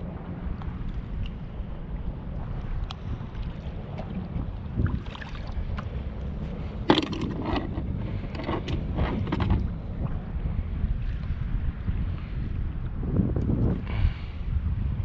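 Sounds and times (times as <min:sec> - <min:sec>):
wind rumbling on microphone: 0:00.0 - 0:15.0
small knocks and clatter: 0:06.9 - 0:09.7.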